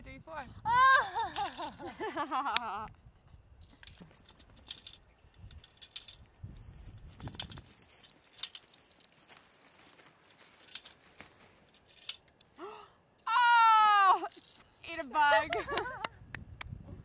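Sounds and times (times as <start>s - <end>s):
person laughing: 0.8s - 2.9s, 15.5s - 16.0s.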